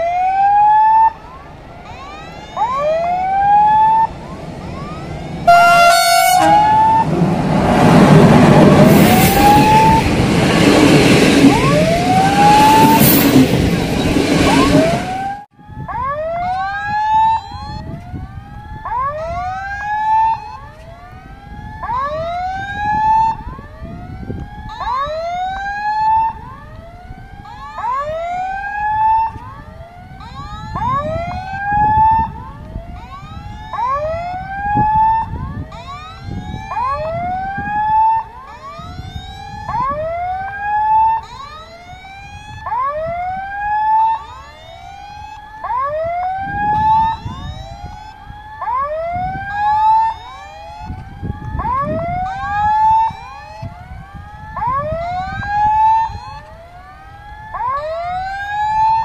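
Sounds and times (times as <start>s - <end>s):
level crossing warning whoops: 0.0s - 7.2s, 8.4s - 10.2s, 11.4s - 18.0s, 30.2s - 32.4s, 33.0s - 56.5s.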